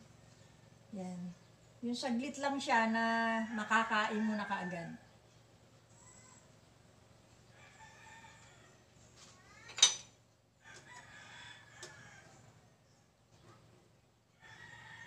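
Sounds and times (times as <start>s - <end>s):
rooster crowing: 3.2s - 5.1s, 7.5s - 8.8s, 10.6s - 12.8s, 14.3s - 15.0s.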